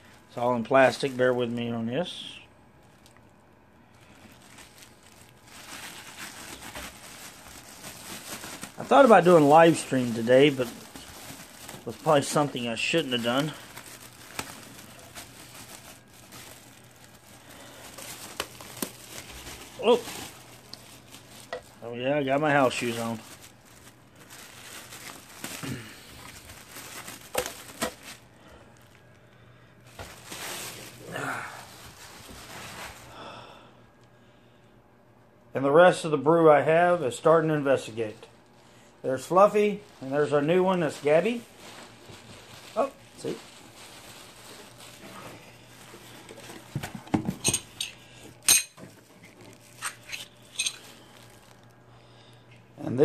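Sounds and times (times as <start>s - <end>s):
plastic wrapping crinkling: 0.0s - 33.3s, 37.9s - 53.0s
metal parts clinking: 49.8s - 50.8s.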